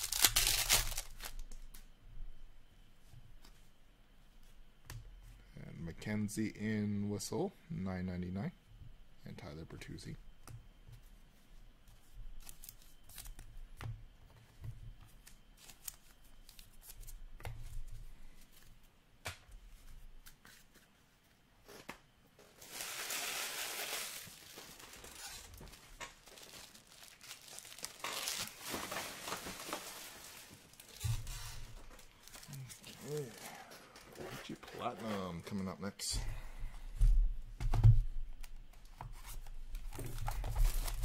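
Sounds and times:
foil wrappers crumpling and tearing: 0.0s - 1.7s, 12.4s - 13.4s, 22.5s - 34.6s, 39.8s - 41.0s.

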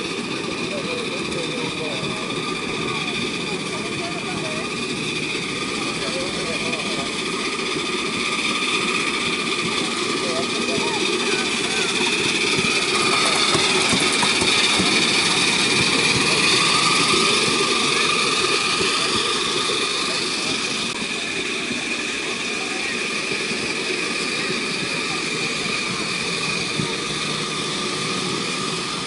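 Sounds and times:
miniature train rolling rumble: 0.0s - 29.0s
wavering whine: 0.0s - 29.0s.

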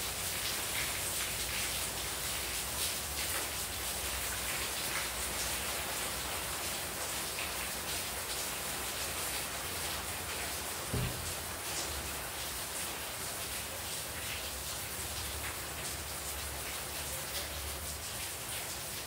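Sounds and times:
heavy rain on tiles: 0.0s - 19.0s
water pouring off roof edge: 0.0s - 19.0s.

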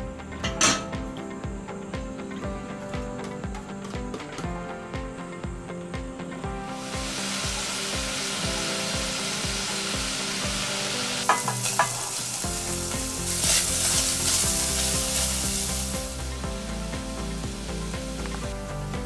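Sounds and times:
clinks on a metal tray: 0.4s - 0.9s
bacon sizzling in a pot: 6.8s - 19.0s.

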